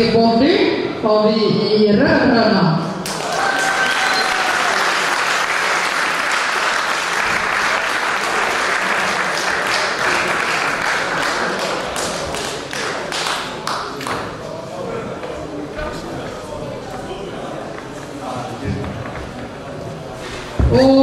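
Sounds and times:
audience applauding: 3.0s - 14.2s.

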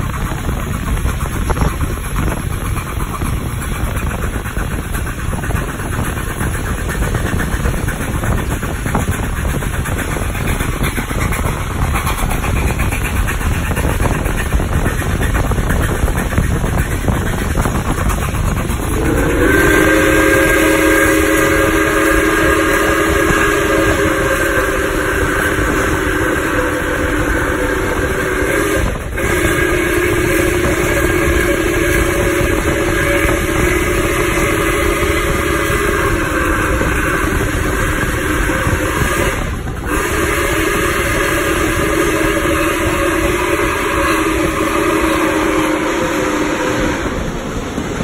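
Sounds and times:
steam locomotive running: 0.0s - 48.0s
steam whistle blasts: 18.9s - 47.4s.

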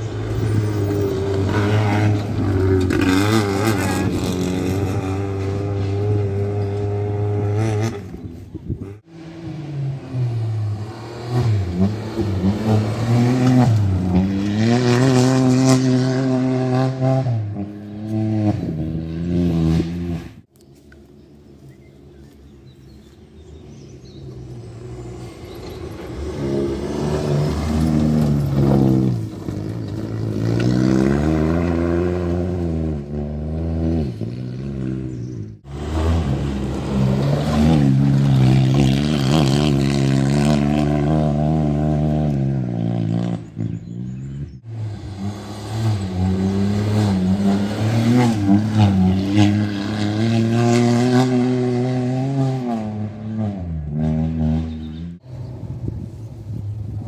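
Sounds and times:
rally car engine revving past: 0.3s - 8.2s, 25.0s - 55.2s.

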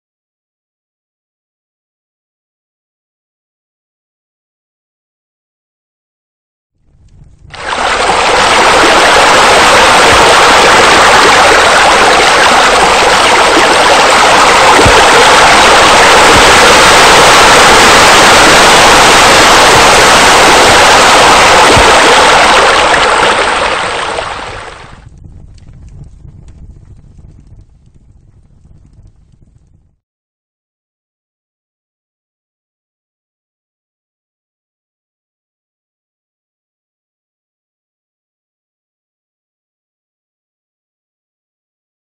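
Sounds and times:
waterfall rushing: 7.6s - 25.0s.

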